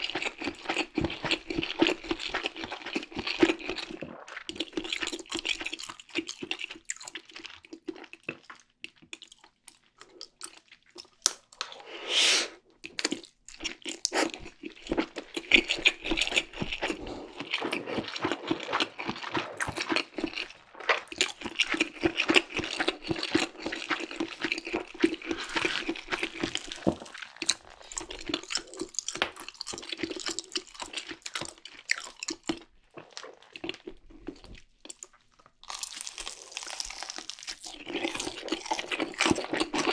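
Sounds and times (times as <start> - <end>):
person chewing noodles: 0.0 - 39.9
person slurping noodles: 11.6 - 12.6, 13.9 - 14.6, 15.4 - 23.8.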